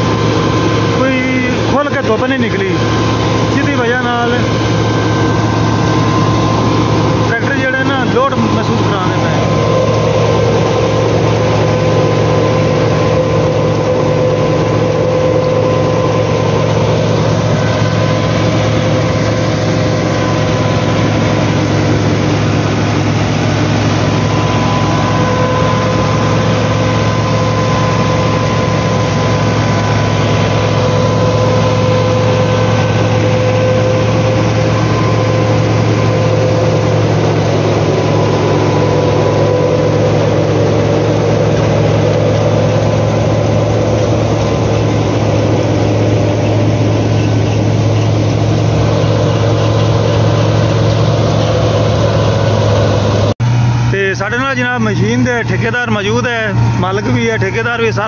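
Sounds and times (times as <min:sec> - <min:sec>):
straw chopper whine: 0:00.0 - 0:58.0
tractor diesel engine running: 0:00.0 - 0:58.0.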